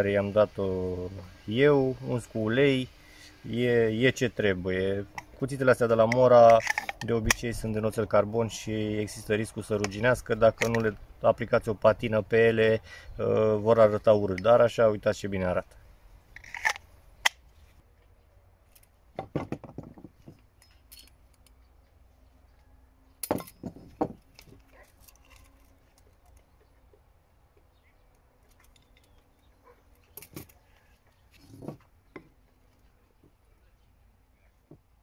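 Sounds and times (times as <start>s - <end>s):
tools knocking on wooden table: 19.2s - 20.4s, 23.3s - 24.2s.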